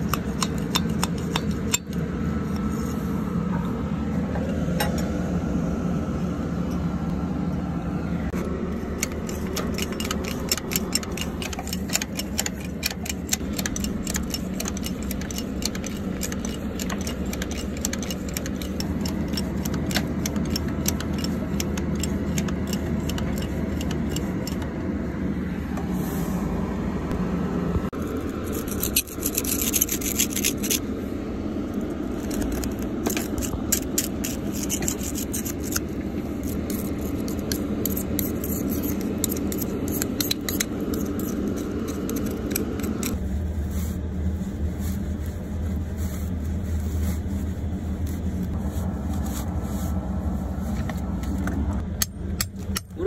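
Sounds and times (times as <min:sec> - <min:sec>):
metal tools scraping steel: 0:00.0 - 0:02.9, 0:08.4 - 0:24.8, 0:28.0 - 0:30.9, 0:31.7 - 0:43.2
low engine hum: 0:00.0 - 0:53.0.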